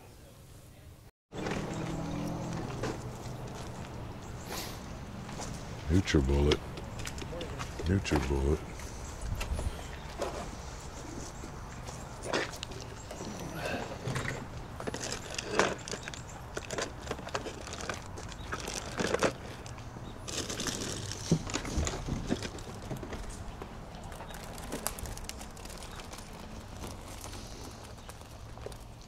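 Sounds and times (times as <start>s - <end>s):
footsteps on pavement: 1.4s - 4.4s, 5.2s - 13.0s
small knocks and rustles: 14.0s - 28.9s.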